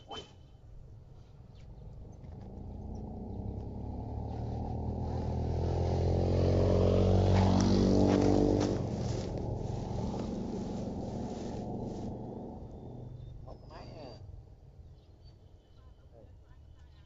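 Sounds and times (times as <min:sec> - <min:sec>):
vehicle engine running: 0:01.6 - 0:13.5.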